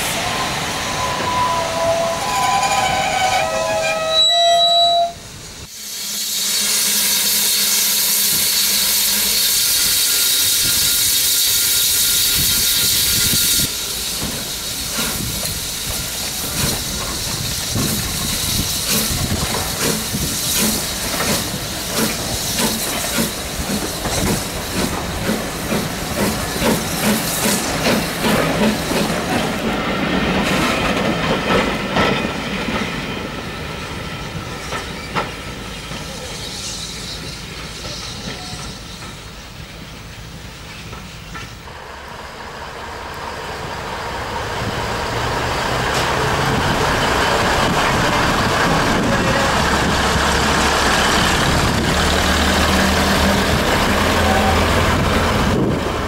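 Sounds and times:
loud hiss of steam: 0.0s - 3.8s, 5.0s - 56.0s
steam locomotive exhaust beats: 5.2s - 33.6s, 34.2s - 56.0s
steam escaping at cylinders: 5.6s - 29.2s.

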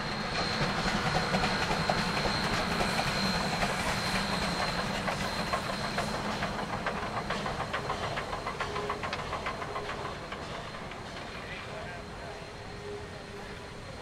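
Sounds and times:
railroad cars rolling by: 0.0s - 14.0s
steam locomotive working: 0.0s - 14.0s
wheels clicking and clanking: 0.7s - 11.6s.

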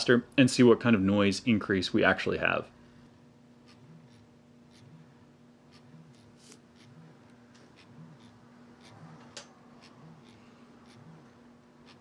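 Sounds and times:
motor humming: 2.8s - 12.0s.

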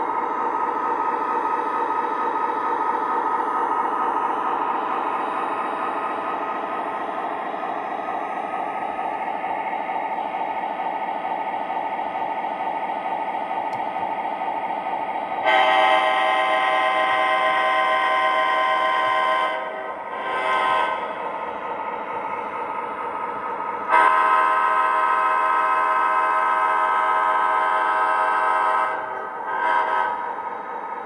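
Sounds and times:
multi-note air horn blast: 15.4s - 21.1s, 23.9s - 30.4s.

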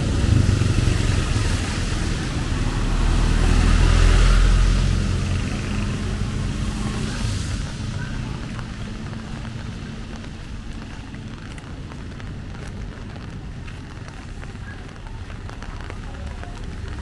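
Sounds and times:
passing vehicle engine: 0.0s - 10.3s
rain hissing on street: 0.0s - 17.0s.

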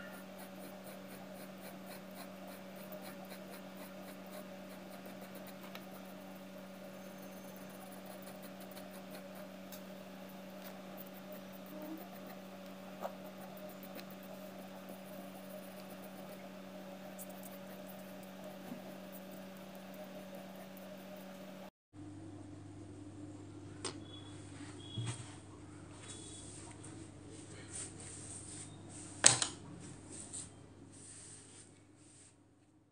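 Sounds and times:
pencil scratching on paper: 0.0s - 21.6s
low electrical hum: 0.0s - 32.9s.

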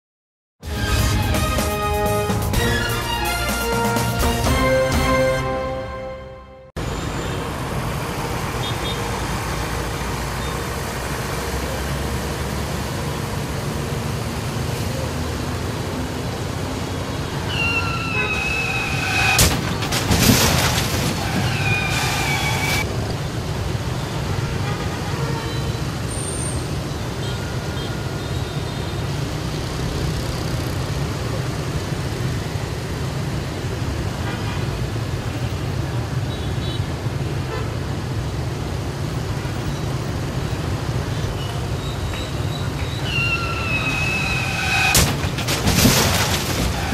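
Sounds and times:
vehicle horns: 0.6s - 6.7s, 17.4s - 19.4s, 24.1s - 26.4s, 36.3s - 37.8s
busy traffic noise: 0.6s - 46.9s
sharp loud bangs: 19.2s - 22.8s, 44.8s - 46.9s.

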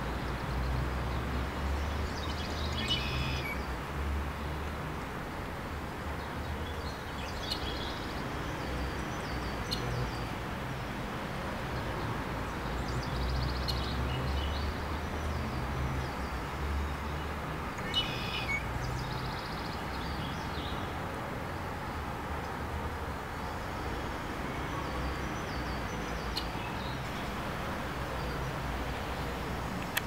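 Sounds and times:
small birds chirping: 6.2s - 10.4s, 12.4s - 21.0s, 24.7s - 30.0s.

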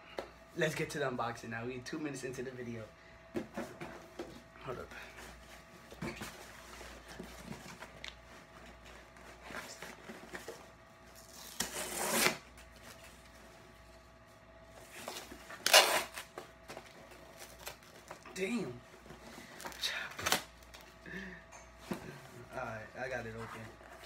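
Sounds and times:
bag tearing open: 11.2s - 12.4s, 15.5s - 16.3s.

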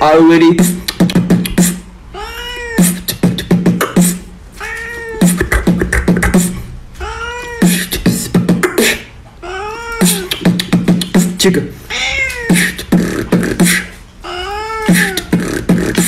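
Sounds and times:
beatbox rhythm: 0.4s - 2.0s, 2.8s - 4.4s, 5.2s - 6.8s, 7.6s - 9.2s, 10.0s - 11.7s, 12.3s - 14.0s, 14.7s - 16.0s
cat meow: 2.2s - 3.0s, 4.6s - 5.4s, 7.0s - 7.8s, 9.4s - 10.4s, 11.9s - 12.6s, 14.2s - 15.3s.

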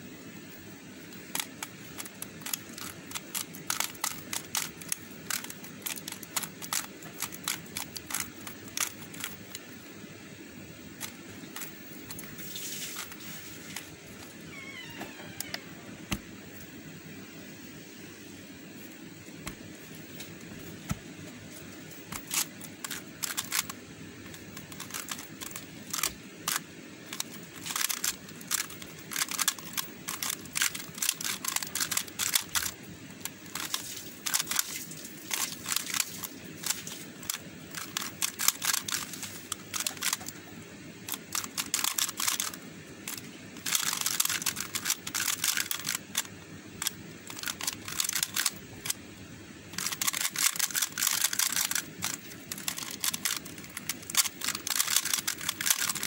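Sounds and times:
plastic puzzle clicking as turned: 1.3s - 9.6s, 22.1s - 34.7s, 35.3s - 40.4s, 41.1s - 49.0s, 49.8s - 56.0s.

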